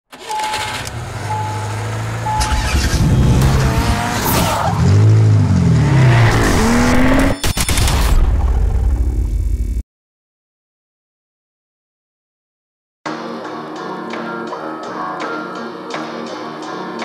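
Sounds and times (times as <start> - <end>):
car engine idling and revving: 0.1 - 7.5
short high beeps: 2.3 - 2.9.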